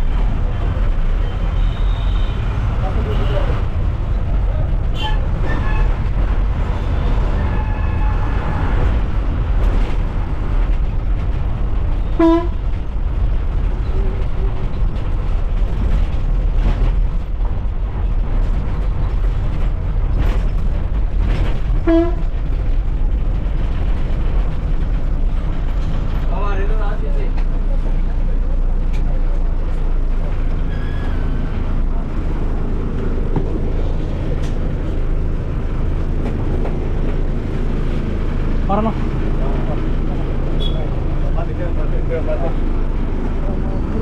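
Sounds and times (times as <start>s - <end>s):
bus engine rumble: 0.0s - 44.0s
short horn toots: 40.6s - 40.9s.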